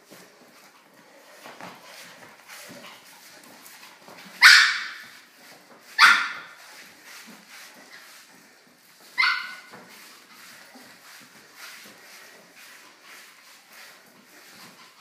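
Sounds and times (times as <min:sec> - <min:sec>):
small dog barking: 0:04.4 - 0:05.0, 0:06.0 - 0:06.5, 0:09.2 - 0:09.7.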